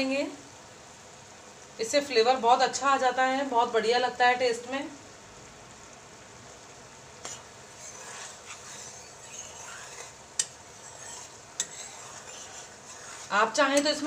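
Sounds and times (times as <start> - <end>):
syrup boiling and bubbling: 5.4 - 13.8.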